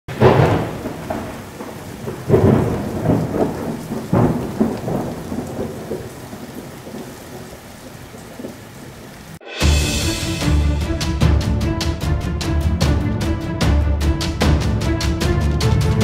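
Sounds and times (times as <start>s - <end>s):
thunder claps rumbling: 0.1s - 12.2s
steady rain: 0.1s - 16.0s.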